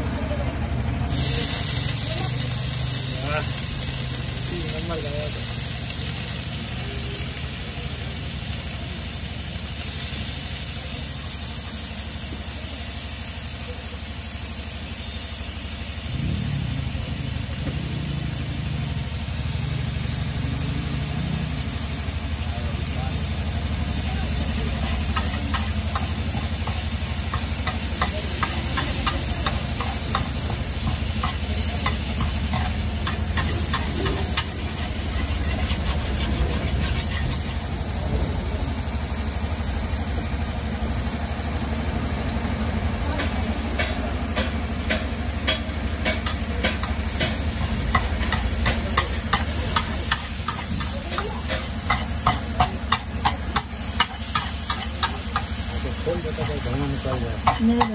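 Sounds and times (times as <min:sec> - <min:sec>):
sizzling on hot plate: 0:00.0 - 0:57.9
metal spatula scraping griddle: 0:24.7 - 0:37.8, 0:43.8 - 0:57.9.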